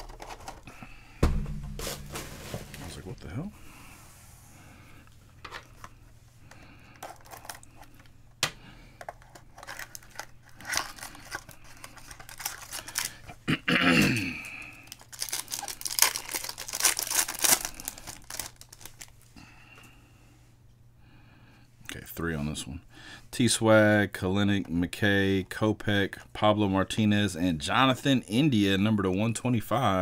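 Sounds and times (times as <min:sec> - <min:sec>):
foil card pack crinkling: 0:06.9 - 0:08.1, 0:09.0 - 0:13.4, 0:14.3 - 0:19.3.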